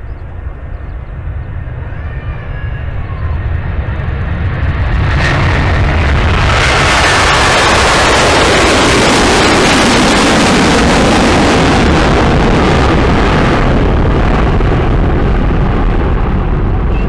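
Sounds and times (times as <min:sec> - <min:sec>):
jet engines at takeoff: 0:00.0 - 0:17.0.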